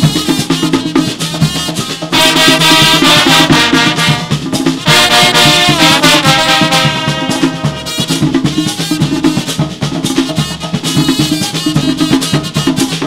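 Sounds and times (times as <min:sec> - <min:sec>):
drums: 0:00.0 - 0:13.0
brass chords: 0:02.1 - 0:08.5.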